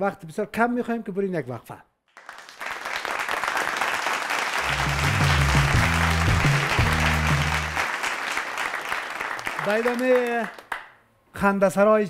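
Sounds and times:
studio audience applauding: 2.1 - 11.0
bass-heavy musical jingle: 4.6 - 7.8.

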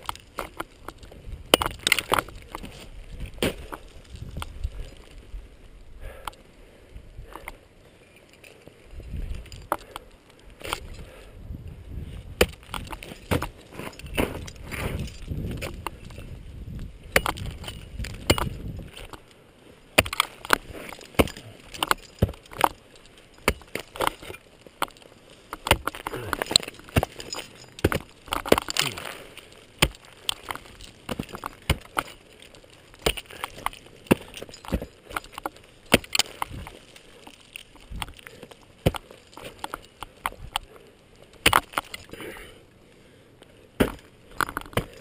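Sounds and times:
ice tools striking ice: 12.4 - 15.9, 17.1 - 19.2, 20.0 - 38.2, 41.4 - 42.2.

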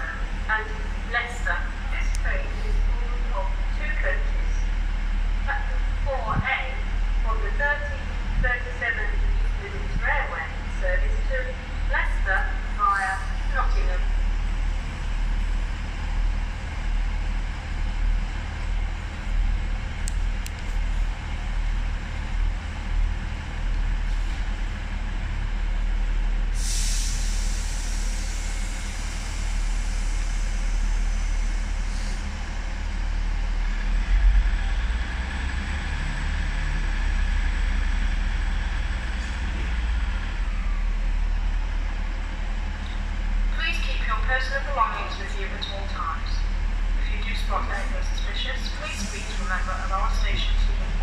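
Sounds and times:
train engine rumble: 0.0 - 51.0
air brake hiss: 26.5 - 32.3.

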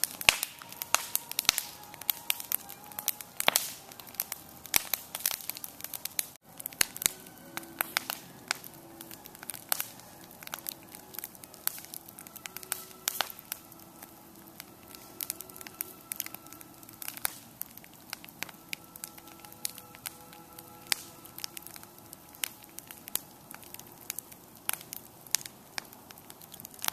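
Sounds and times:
wood fire crackling and popping: 0.0 - 26.9.

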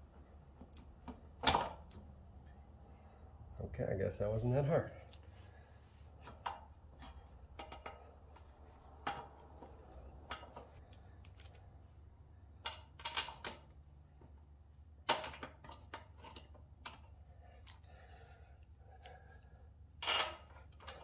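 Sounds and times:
metal bolts and tool clinking: 6.2 - 8.1, 9.0 - 11.7, 12.6 - 13.7, 20.0 - 21.0.

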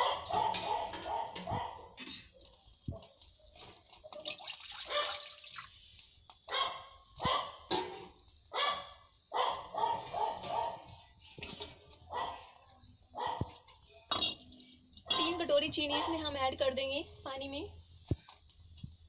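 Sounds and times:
dog barking: 0.0 - 2.0, 4.8 - 5.4, 6.5 - 7.7, 8.5 - 11.0, 12.1 - 13.6.

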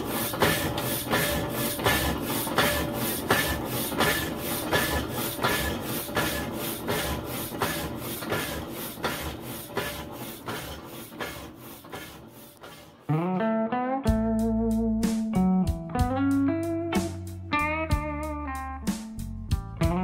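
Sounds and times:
hacksaw rasping through metal: 0.0 - 13.1
machine hum: 0.0 - 13.1.

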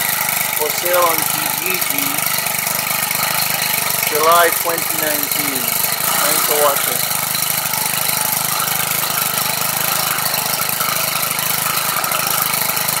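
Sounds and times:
string trimmer engine idling: 0.0 - 13.0.

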